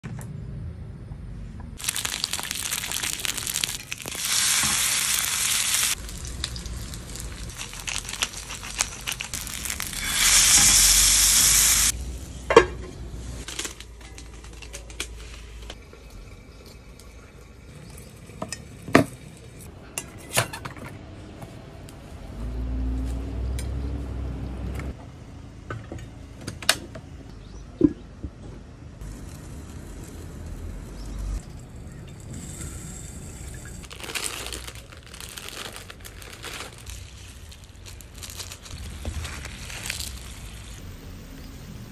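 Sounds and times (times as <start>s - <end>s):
meat sizzling on griddle: 1.8s - 12.0s.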